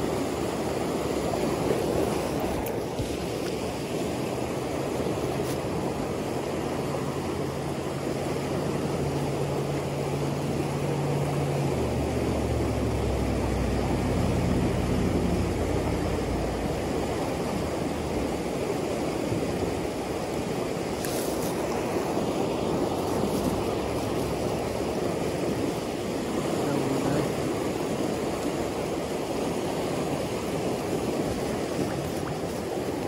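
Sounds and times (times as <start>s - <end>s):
stream rushing over rocks: 0.0s - 33.0s
low motor drone: 7.6s - 18.2s.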